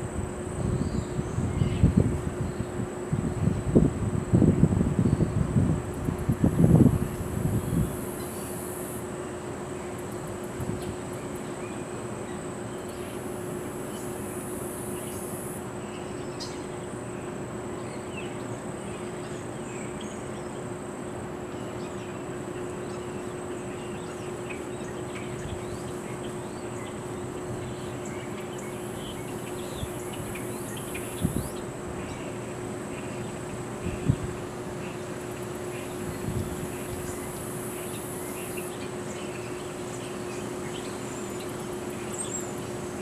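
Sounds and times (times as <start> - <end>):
constant low hum: 0.0 - 43.0
high insect buzz: 5.9 - 9.1, 12.9 - 15.6, 28.5 - 31.6, 35.7 - 38.8.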